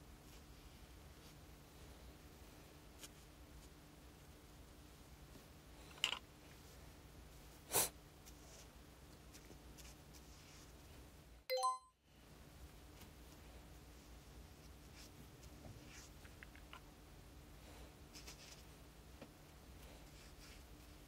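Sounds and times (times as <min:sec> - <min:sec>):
multi-tone ding: 0:11.5 - 0:12.0.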